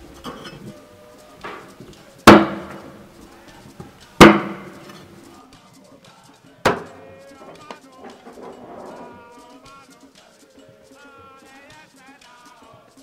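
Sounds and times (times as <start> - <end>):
cleaver chopping on wooden board: 2.3 - 3.0, 4.2 - 5.0, 6.7 - 6.9.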